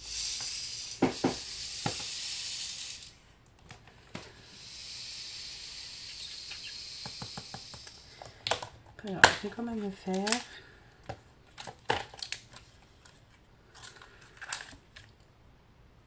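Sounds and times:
steady hiss: 0:00.0 - 0:11.5.

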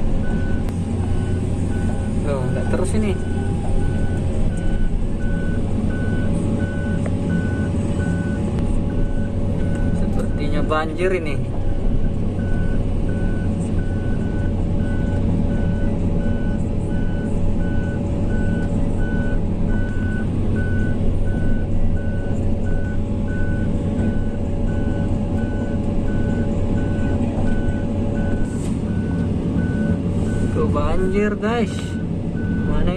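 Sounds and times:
diesel engine running: 0:00.0 - 0:32.9
warning beeper: 0:00.3 - 0:10.7.

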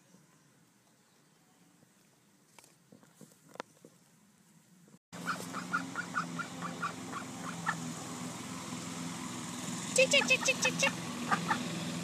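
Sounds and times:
fowl calling: 0:05.2 - 0:07.8.

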